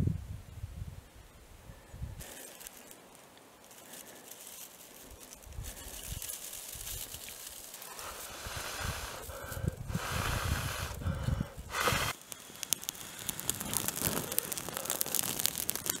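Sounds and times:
wind rumble on microphone: 0.0s - 2.2s, 8.4s - 12.1s
dry grass crackling in fire: 2.2s - 16.0s
loud puff of air: 8.0s - 12.2s.

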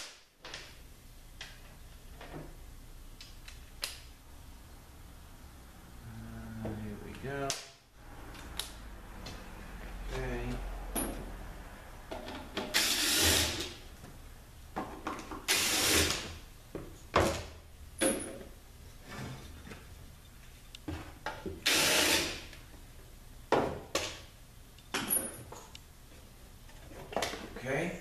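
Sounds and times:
air tool hissing bursts: 21.6s - 22.5s.

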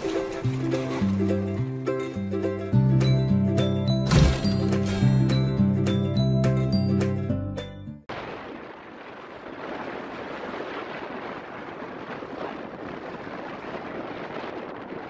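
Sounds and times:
wind on microphone: 8.4s - 15.0s.

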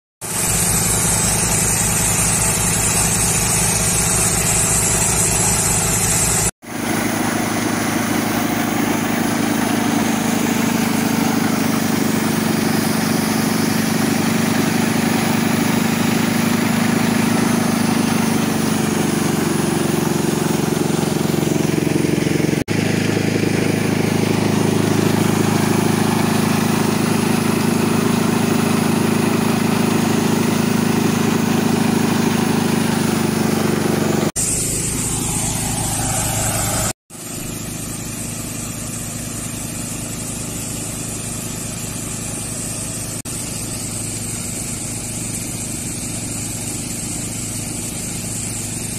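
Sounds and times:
loud hiss: 0.2s - 38.4s
diesel tractor engine running: 0.2s - 48.9s.

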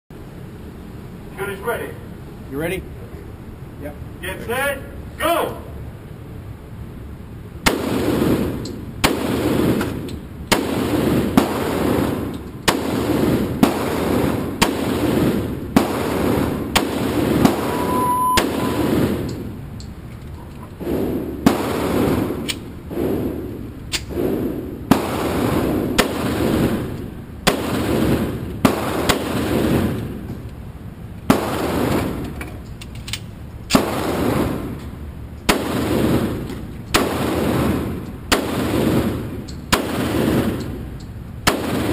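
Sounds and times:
short beep: 17.6s - 18.9s
handgun shots with booming echo: 41.4s - 41.9s.

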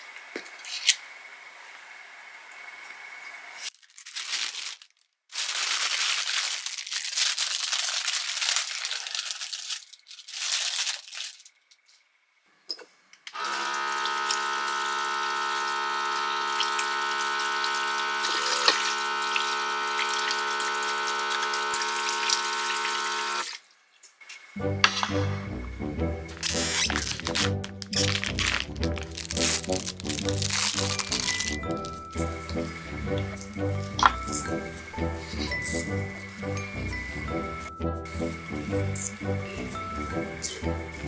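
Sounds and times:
rustling and handling noise: 3.6s - 12.1s, 26.3s - 36.2s
small pump motor humming: 13.4s - 23.6s, 29.2s - 41.0s.

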